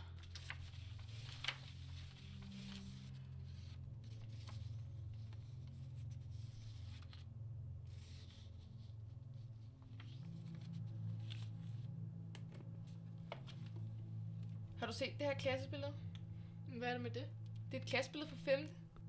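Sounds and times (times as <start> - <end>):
paper photographs rustling: 0.0 - 12.0
low steady drone: 0.0 - 19.0.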